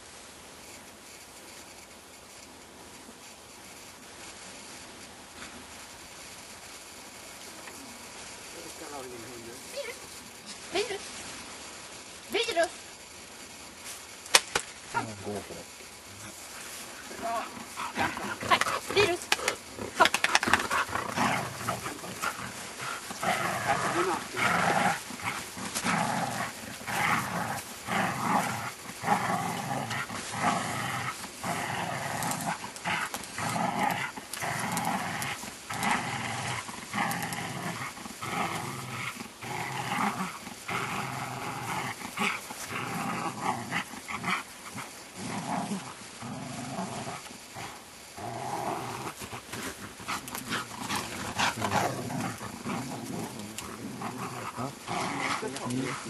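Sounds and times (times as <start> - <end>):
dog play growling: 14.9 - 56.0.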